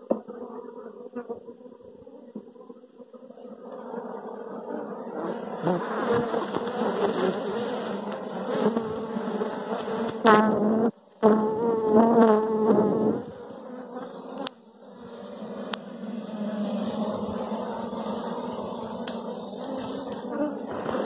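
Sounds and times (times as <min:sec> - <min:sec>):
bees buzzing loudly: 0:03.5 - 0:21.0.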